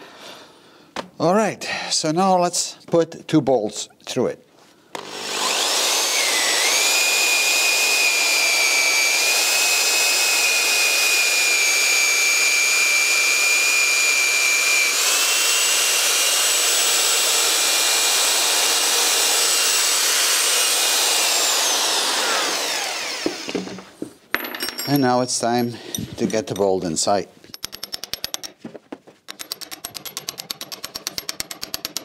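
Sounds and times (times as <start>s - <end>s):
cordless drill boring through wood: 4.9s - 23.8s.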